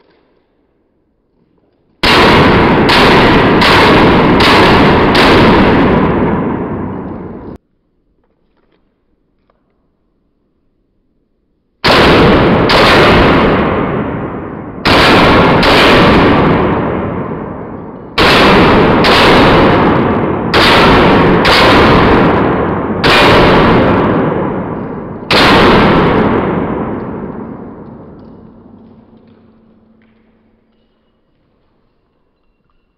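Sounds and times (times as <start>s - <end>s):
pistol shots echoing: 2.0s - 7.6s, 11.8s - 31.0s.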